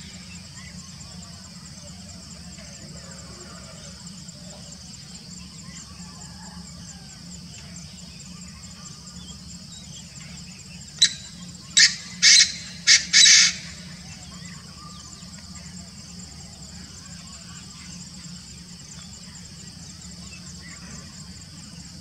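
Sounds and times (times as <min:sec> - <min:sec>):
insects droning: 0:00.0 - 0:22.0
bird calling loud notes: 0:11.0 - 0:15.0.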